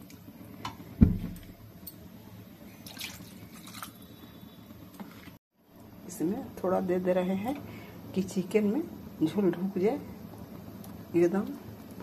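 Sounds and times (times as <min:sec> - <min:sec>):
gravy splashing in pan: 0:02.7 - 0:05.4.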